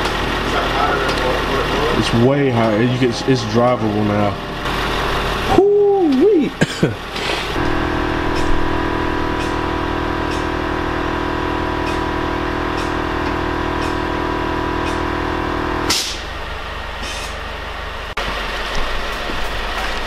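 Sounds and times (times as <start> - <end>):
compressor electric whine: 0.0 - 20.0.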